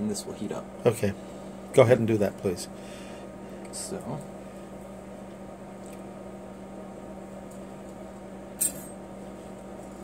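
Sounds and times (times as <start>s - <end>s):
steady electrical hum: 0.0s - 10.0s.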